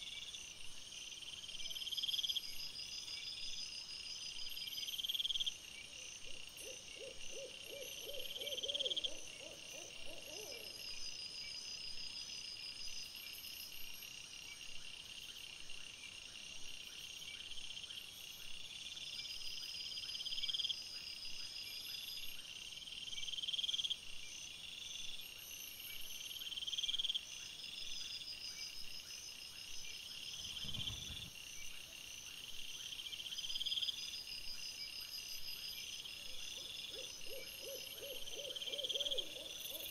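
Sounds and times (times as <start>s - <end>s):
low hoot-like call: 6.6s - 10.8s
crickets chirring: 6.6s - 14.4s, 17.7s - 39.9s
soft low thump: 30.4s - 31.3s.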